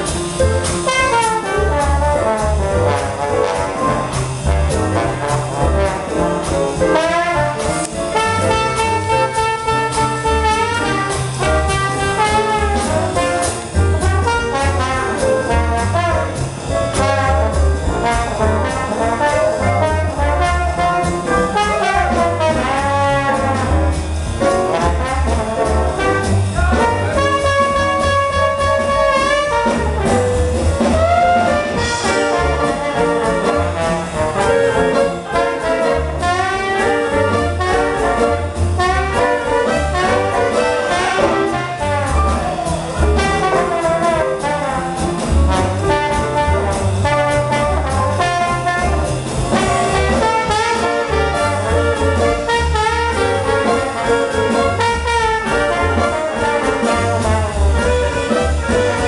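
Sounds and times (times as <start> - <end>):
plucked double bass: 0.0 - 59.0
trombone playing melody: 0.0 - 59.0
trumpet playing melody: 0.6 - 59.0.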